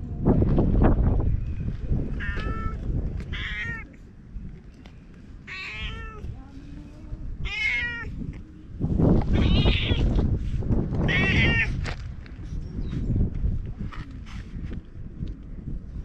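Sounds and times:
low rumbling on microphone: 0:00.0 - 0:16.0
cat meowing: 0:02.2 - 0:03.9, 0:05.5 - 0:06.2, 0:07.4 - 0:08.1, 0:09.3 - 0:10.2, 0:11.1 - 0:11.7.

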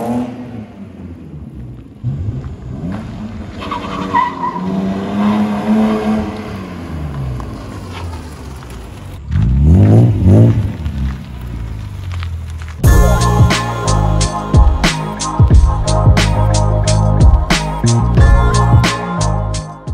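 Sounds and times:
car engine revving: 0:00.0 - 0:14.3.

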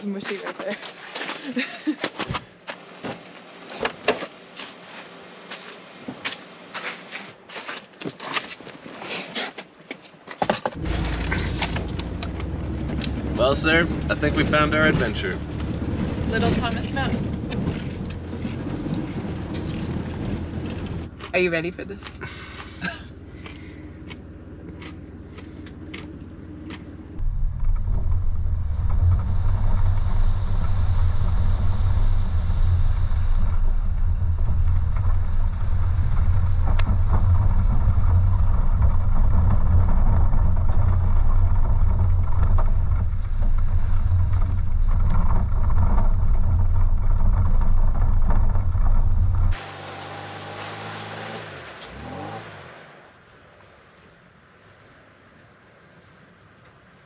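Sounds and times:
engine and tyres rumbling: 0:02.1 - 0:08.9, 0:09.5 - 0:57.0
wind buffeting: 0:10.8 - 0:21.2, 0:23.1 - 0:49.7.

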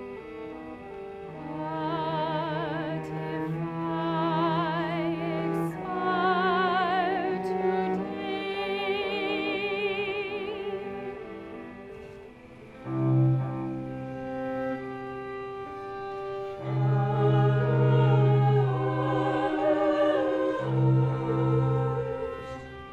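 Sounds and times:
bowed strings: 0:00.0 - 0:22.9
operatic voice singing: 0:16.6 - 0:22.7.

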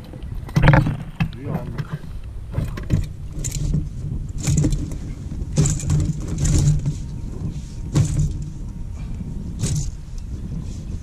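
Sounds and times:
wind rumbling on microphone: 0:00.0 - 0:11.0
net rustling and knocking: 0:02.5 - 0:08.8, 0:09.5 - 0:10.1.

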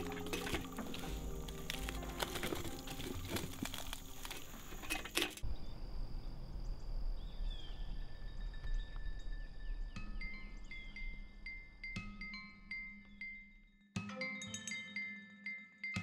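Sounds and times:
rustling: 0:00.0 - 0:05.4
high insect whine: 0:00.0 - 0:08.5.

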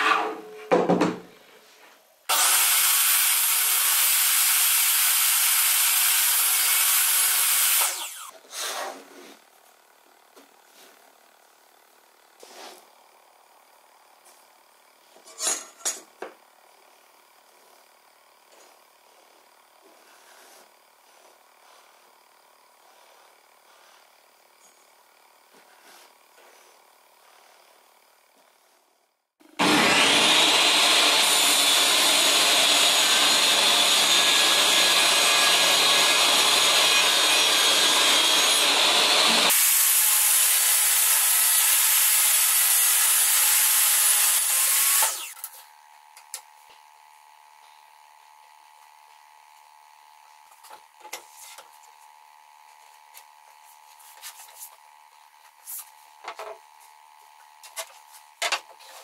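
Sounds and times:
wood panel knocks: 0:00.7 - 0:01.2
table saw cutting: 0:02.3 - 0:09.1, 0:29.4 - 0:45.8.

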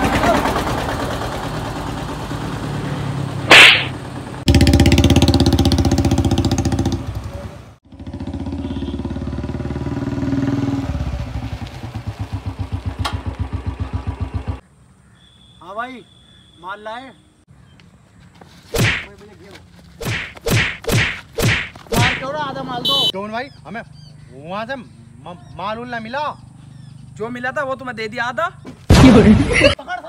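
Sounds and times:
motorcycle engine revving: 0:00.0 - 0:14.6
sharp loud bang: 0:03.5 - 0:04.0, 0:18.8 - 0:19.1, 0:20.0 - 0:22.3.

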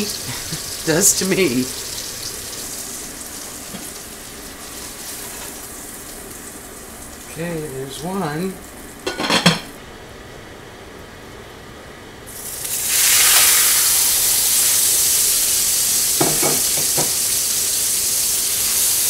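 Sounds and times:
meat sizzling in oil: 0:00.0 - 0:07.7, 0:12.3 - 0:19.0
hot oil hissing: 0:00.0 - 0:09.7, 0:12.3 - 0:19.0.

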